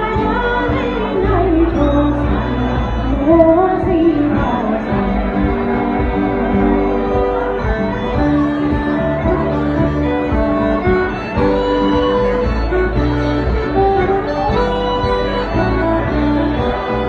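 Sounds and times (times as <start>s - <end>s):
woman singing: 0.0s - 6.9s
acoustic guitar: 0.0s - 17.0s
concertina: 0.0s - 17.0s.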